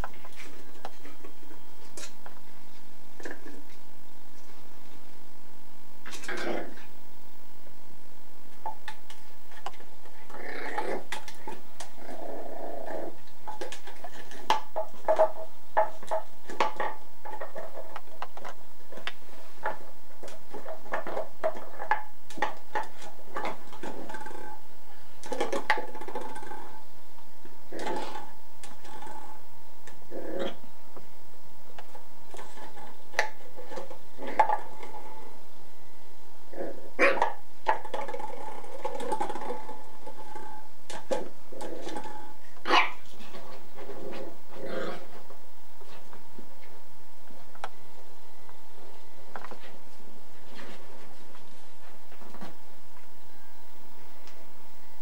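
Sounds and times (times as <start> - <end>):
puppy growling: 6.0 - 7.0, 10.1 - 26.9, 27.7 - 30.8, 32.3 - 35.4, 36.5 - 45.4.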